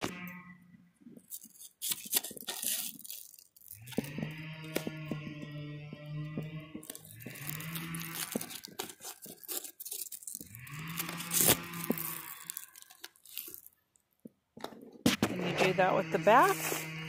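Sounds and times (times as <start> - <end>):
velcro straps ripping: 1.2 - 5.1, 6.8 - 13.8
chainsaw revving: 3.8 - 9.7, 10.5 - 12.6, 15.4 - 17.0.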